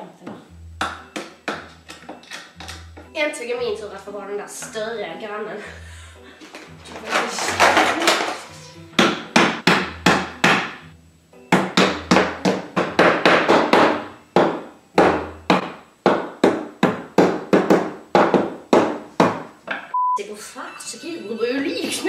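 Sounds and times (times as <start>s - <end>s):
hammer strikes: 0.8s - 3.1s, 9.0s - 10.9s, 11.5s - 19.9s.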